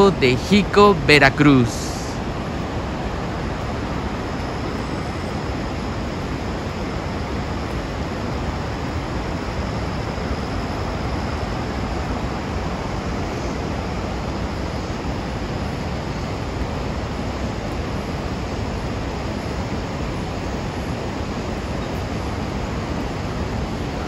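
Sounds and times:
waterfall rushing: 0.0s - 4.4s.

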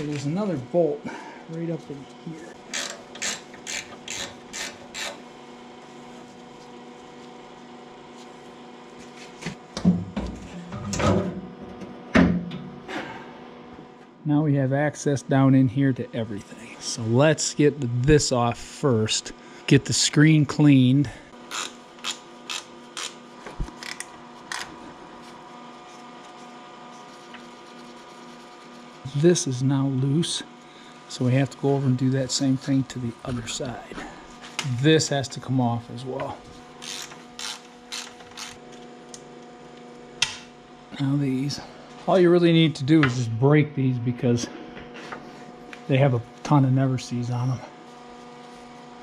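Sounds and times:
faint steady hum: 0.0s - 49.0s
ratchet wrench clicking: 2.7s - 5.2s, 21.5s - 23.2s, 36.8s - 38.6s.

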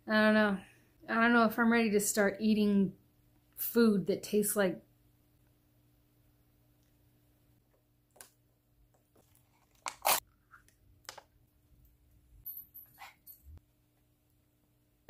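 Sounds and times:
rustling and crinkling props: 8.1s - 11.3s.

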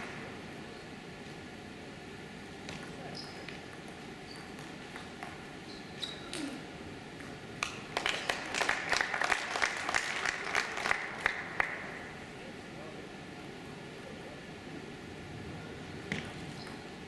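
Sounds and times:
crowd clapping: 7.6s - 12.0s.

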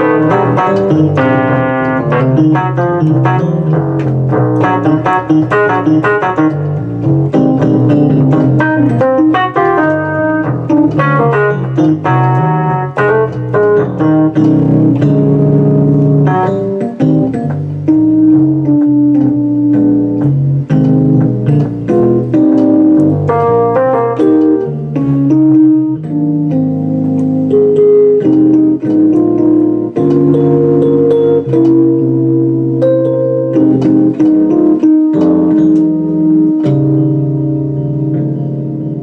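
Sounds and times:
digital piano playing: 0.0s - 39.0s.

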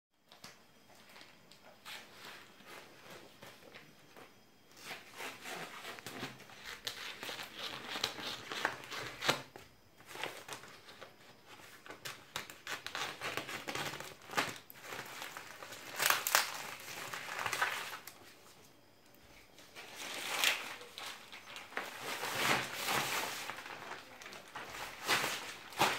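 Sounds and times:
plastic wrap crinkling and tearing: 12.0s - 18.2s, 19.8s - 25.9s
scissors cutting plastic wrap: 12.2s - 18.1s.

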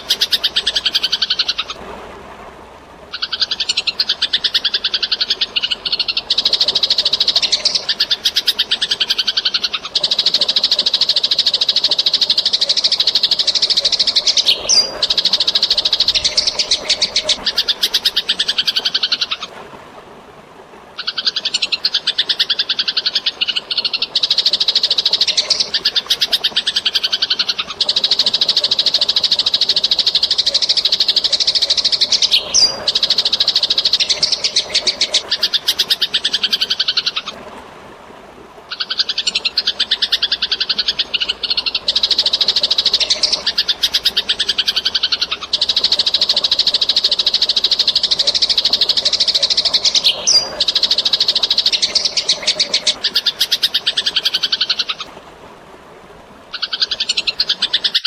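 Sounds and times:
faint water: 0.0s - 58.0s
sparrows chattering harshly: 13.6s - 18.9s.

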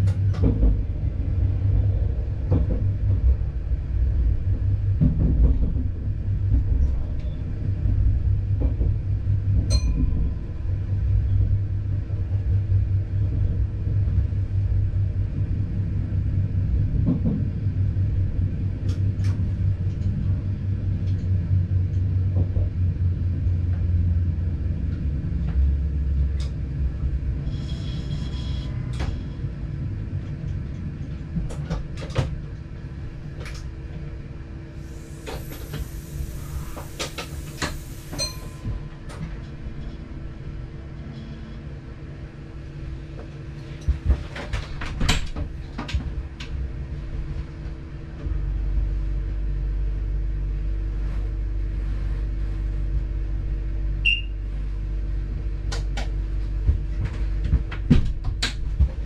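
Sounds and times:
train rumbling on rails: 0.0s - 59.0s.

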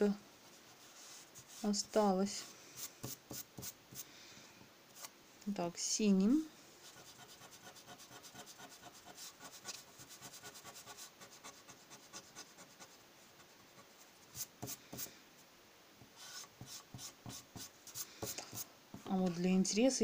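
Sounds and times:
eraser scraping on paper: 6.8s - 12.8s
eraser rubbing on paper: 6.8s - 12.9s.

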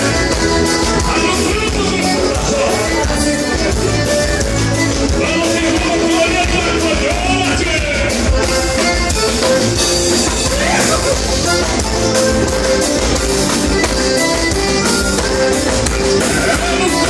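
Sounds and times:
drum kit dance beat: 0.0s - 17.0s
electric guitar: 0.0s - 17.0s
person singing: 0.7s - 7.2s, 16.0s - 17.0s.

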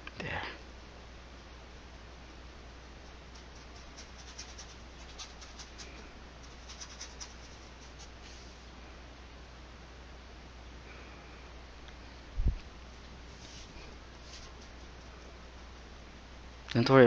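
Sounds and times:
paintbrush scrubbing on canvas: 3.3s - 8.6s.

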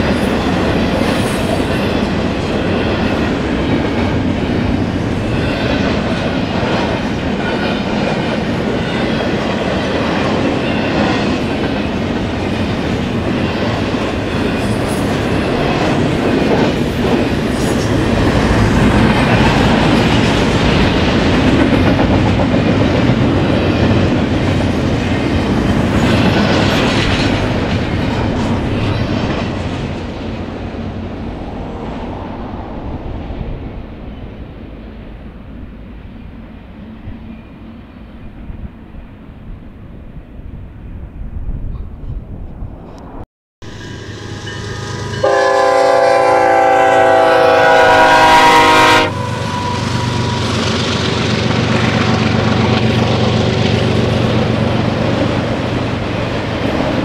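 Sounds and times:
freight train cars rumbling past: 0.0s - 57.0s.

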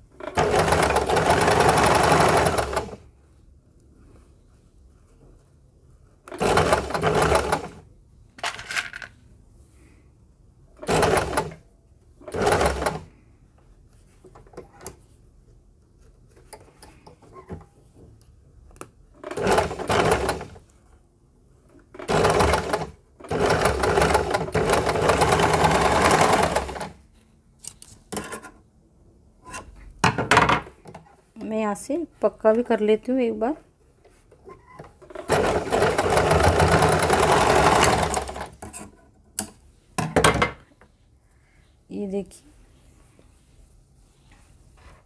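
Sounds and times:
sewing machine stitching: 0.2s - 3.0s, 6.3s - 7.8s, 10.8s - 11.6s, 12.2s - 13.1s, 19.2s - 20.6s, 21.9s - 27.0s, 34.5s - 38.7s.

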